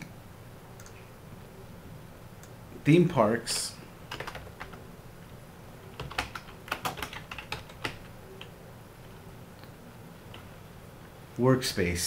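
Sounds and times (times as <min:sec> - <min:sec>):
computer keyboard typing: 0:03.5 - 0:04.8, 0:06.0 - 0:08.5.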